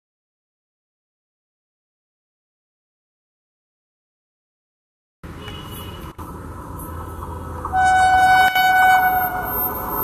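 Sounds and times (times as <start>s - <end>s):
train running noise: 6.3s - 10.0s
electric locomotive horn: 7.7s - 10.0s.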